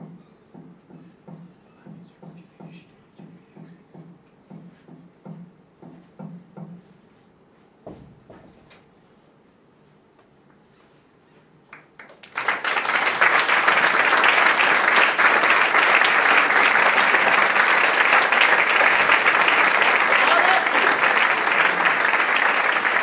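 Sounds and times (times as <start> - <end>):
audience applauding: 11.7 - 23.0.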